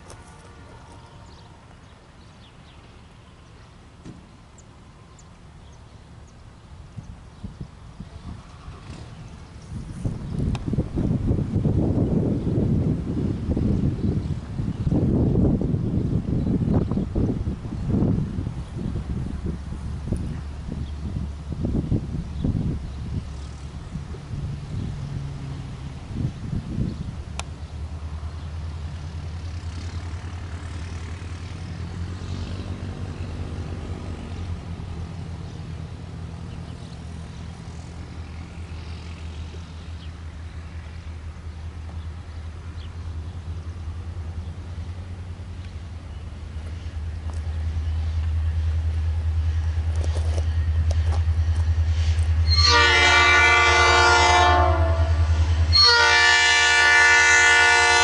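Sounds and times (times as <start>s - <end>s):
locomotive air horn blast: 0.0s - 1.7s, 52.0s - 58.0s
diesel locomotive engine drone: 0.0s - 58.0s.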